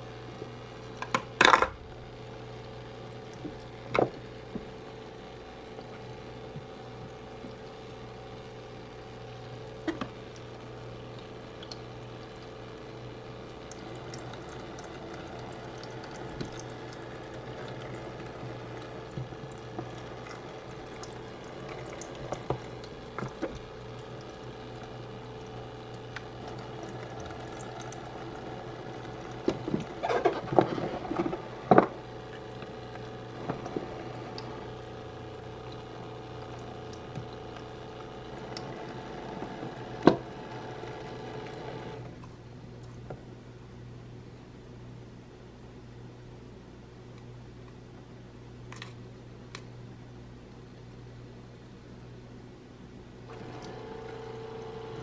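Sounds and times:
small electric pump humming: 0.0s - 42.4s, 53.2s - 55.0s
water streaming into plastic basin: 9.0s - 42.2s, 53.3s - 55.0s.

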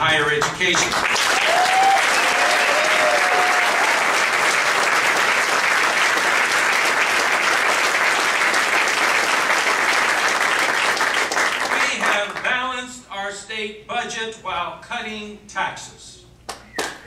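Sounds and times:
crowd applauding: 0.4s - 12.4s
whoops and shouts: 1.4s - 4.0s.

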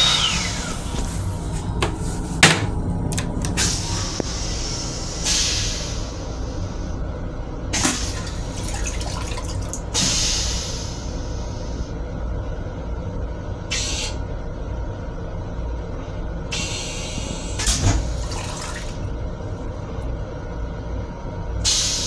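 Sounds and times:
toilet flushing with hissing bursts: 0.0s - 2.0s, 3.4s - 7.1s, 7.7s - 12.0s, 13.6s - 14.4s, 16.4s - 20.0s, 21.6s - 22.0s.

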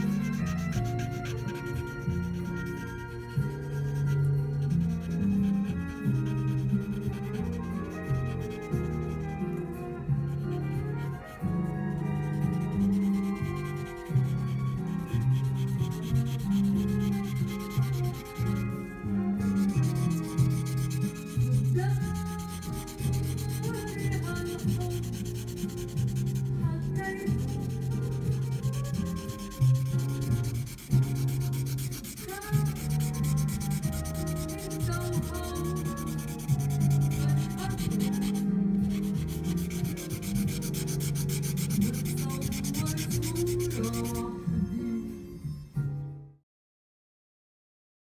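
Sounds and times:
pencil scratching on paper: 0.0s - 9.4s, 12.2s - 18.7s, 19.4s - 44.3s
background music: 0.0s - 46.4s.

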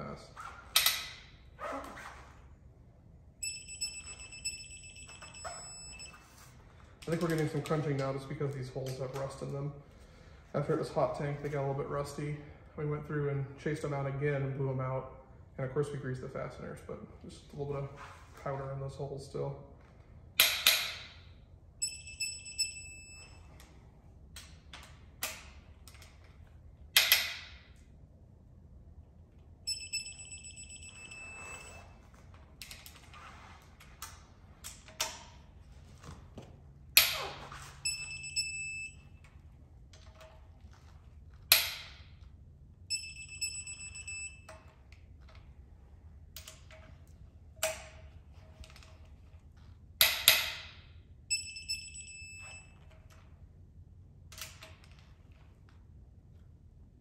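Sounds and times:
torque wrench high beeps: 3.4s - 6.5s, 21.8s - 23.4s, 29.7s - 32.0s, 37.1s - 39.1s, 42.9s - 44.6s, 51.3s - 52.8s
bolts cracking and knocking: 27.0s - 27.7s, 36.4s - 37.5s, 41.4s - 42.3s, 50.0s - 50.8s.

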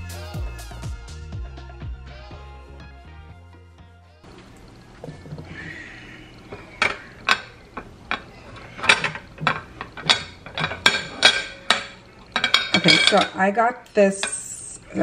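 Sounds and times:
metal frame clinking: 6.7s - 13.4s.

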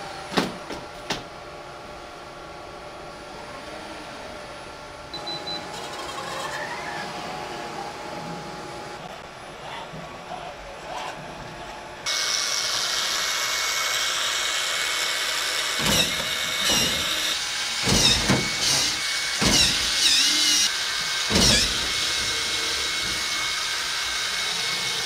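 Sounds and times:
robot motors whining: 5.1s - 25.0s.

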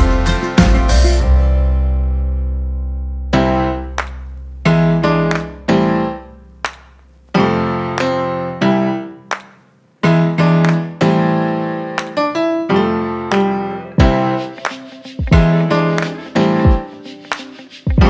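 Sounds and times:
low held bass tone: 0.0s - 7.3s
piano notes and chords: 0.0s - 18.0s.

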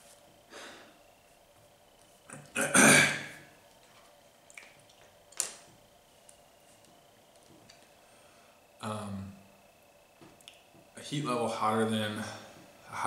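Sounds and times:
man breathing: 0.5s - 1.0s, 8.0s - 8.6s
man clearing throat: 2.3s - 3.4s.

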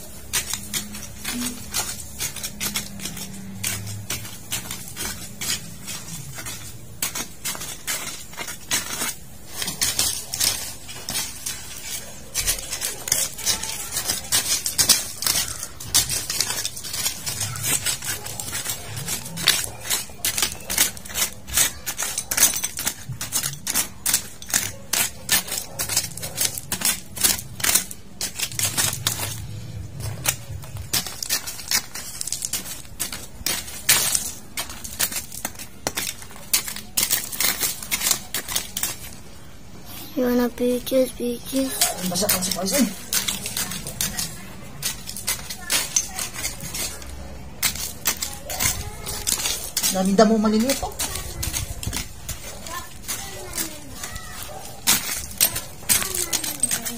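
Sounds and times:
weeds torn with stems snapping: 0.0s - 39.4s.

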